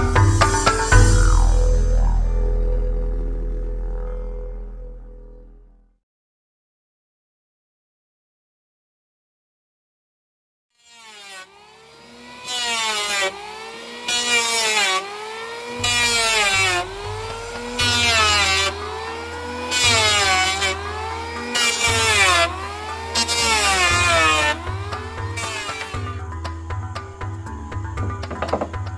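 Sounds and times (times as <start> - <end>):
planer shaving wood hiss: 10.8 - 26.2
electric planer motor whine: 10.8 - 28.9.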